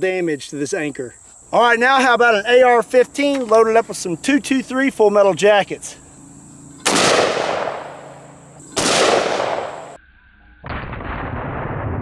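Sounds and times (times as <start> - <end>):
rifle shots echoing: 6.8 - 10.0
dull boom: 10.6 - 12.0.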